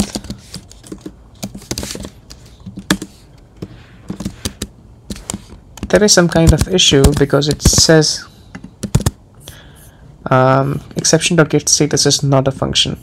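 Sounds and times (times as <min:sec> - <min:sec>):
typing on computer keyboard: 0:00.0 - 0:03.2, 0:08.5 - 0:09.2.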